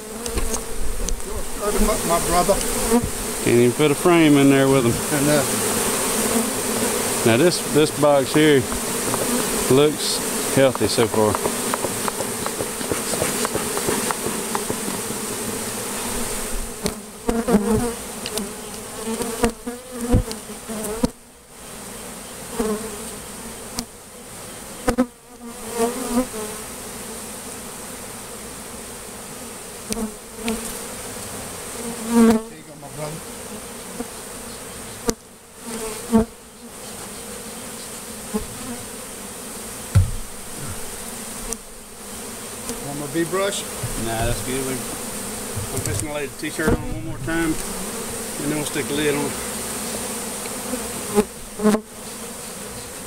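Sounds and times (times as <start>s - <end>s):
bees buzzing: 0.0s - 53.0s
thumps and rustles: 0.3s - 1.9s, 8.3s - 9.4s, 10.7s - 15.5s, 39.9s - 41.6s, 43.8s - 47.8s.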